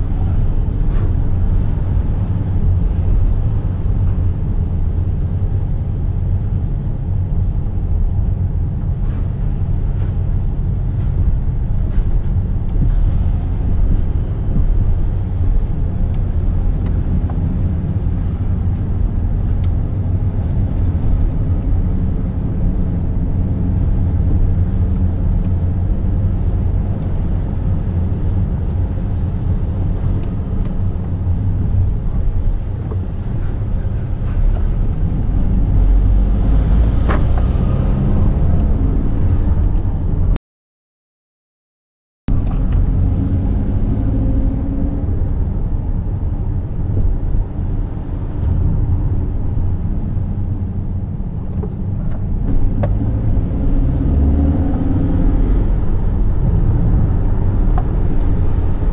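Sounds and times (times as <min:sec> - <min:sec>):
car engine and tyre rumble: 0:00.0 - 0:40.4, 0:42.3 - 0:58.9.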